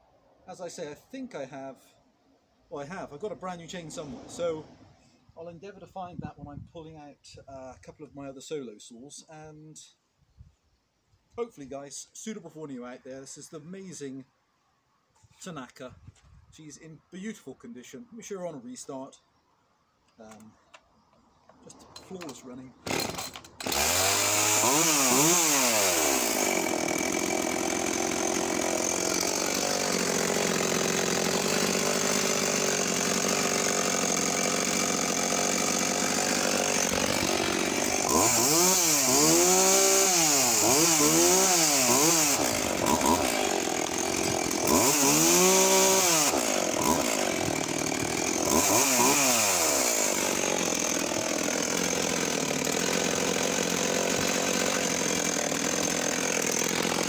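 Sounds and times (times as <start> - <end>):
chainsaw idling and revving: 21.6 - 57.0.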